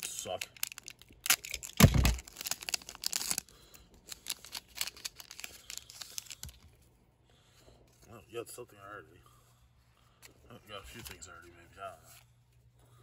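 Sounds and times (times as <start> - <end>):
foil wrapper crinkling and tearing: 0.0 - 6.8.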